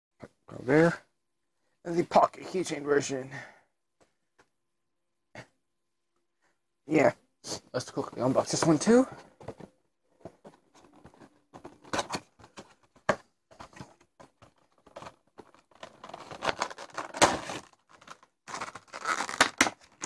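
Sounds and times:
cardboard and plastic rustling: 0:07.9 - 0:20.0.

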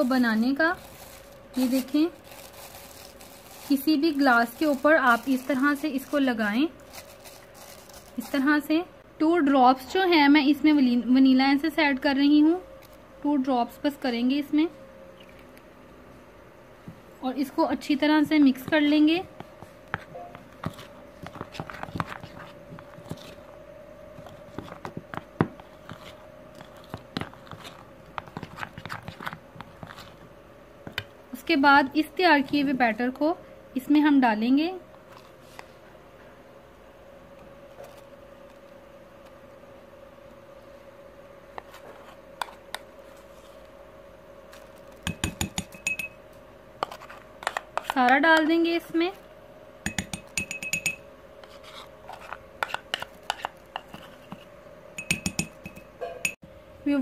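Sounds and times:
faint steady hum: 0:00.0 - 0:57.0
spoon clinking against glass bowl: 0:45.1 - 0:46.2, 0:49.8 - 0:51.1, 0:55.0 - 0:56.4
spoon scraping bowl: 0:49.9 - 0:55.9.

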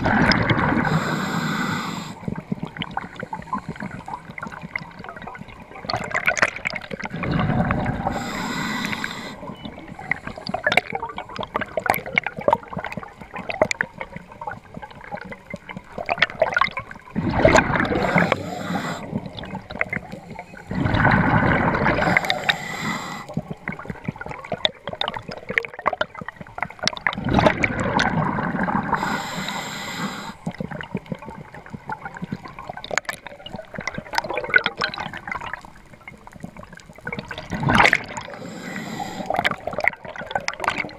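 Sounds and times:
bubbling exhaled air underwater: 0:00.0 - 0:40.9
crackling clicks underwater: 0:00.0 - 0:40.9
regulator hiss: 0:00.8 - 0:02.2, 0:08.0 - 0:10.6, 0:18.0 - 0:19.1, 0:22.0 - 0:23.3, 0:28.9 - 0:30.4, 0:38.4 - 0:39.4.

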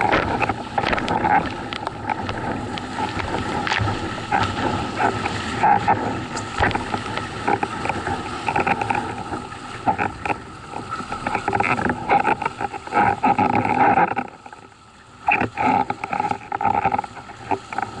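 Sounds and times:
wind buffeting microphone: 0:00.0 - 0:09.5
water rushing and slapping: 0:00.0 - 0:18.0.

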